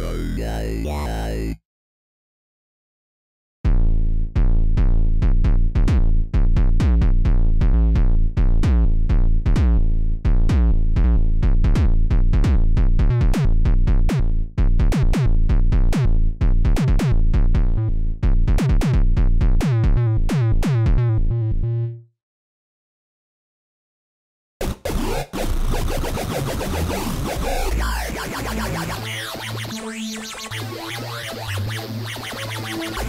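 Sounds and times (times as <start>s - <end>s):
synthesizer bass notes: 0.0s - 1.6s, 3.6s - 22.1s, 24.6s - 33.0s.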